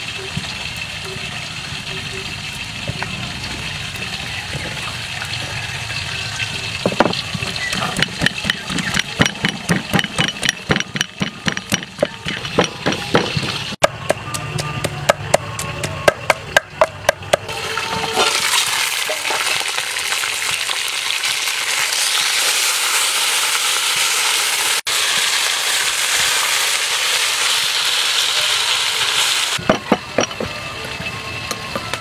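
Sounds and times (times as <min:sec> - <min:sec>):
chicken sizzling in pot: 0:00.0 - 0:13.8, 0:17.4 - 0:32.0
pestle pounding in mortar: 0:06.8 - 0:17.5.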